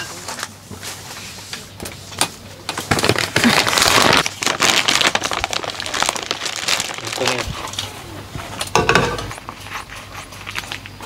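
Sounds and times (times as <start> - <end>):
plastic bag crinkling and rustling: 2.8 - 8.6, 9.3 - 11.0.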